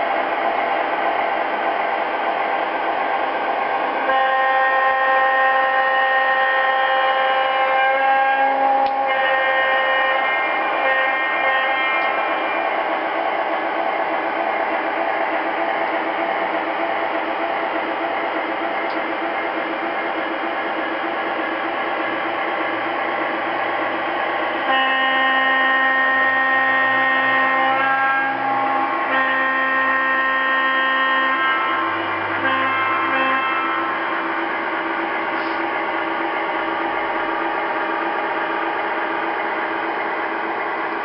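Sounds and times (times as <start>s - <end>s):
model train horn blasts: 4.1s - 12.2s, 24.6s - 34.0s.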